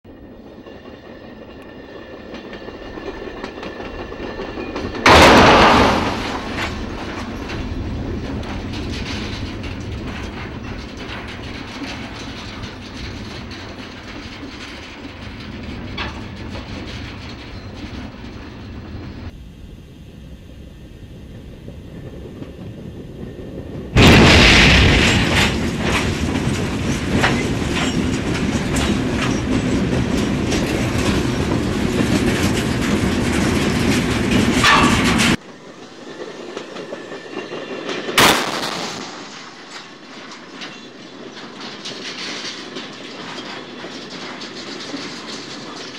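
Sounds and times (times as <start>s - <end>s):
passenger train rolling: 0.1s - 45.9s
grinding rumble of crushing railcars: 0.2s - 19.4s, 21.6s - 45.9s
train crash impact: 4.8s - 19.0s, 23.9s - 35.4s, 38.1s - 42.6s.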